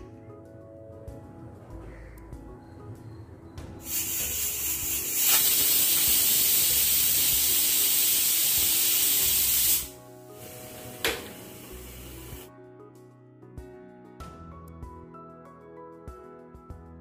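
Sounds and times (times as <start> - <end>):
pressure cooker whistling: 3.8 - 9.9.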